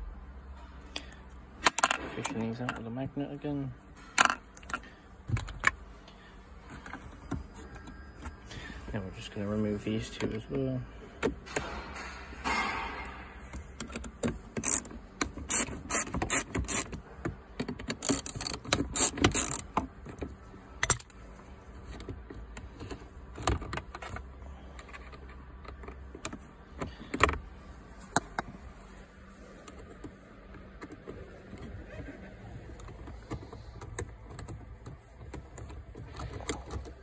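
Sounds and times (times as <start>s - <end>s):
socket wrench clicking: 13.8s - 17.0s, 17.6s - 19.8s.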